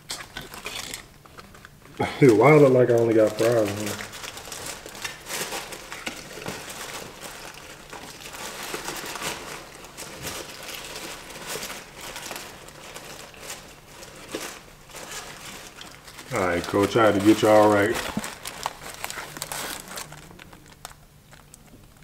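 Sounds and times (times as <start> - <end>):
paper bag crinkling and rustling: 0.1 - 22.0.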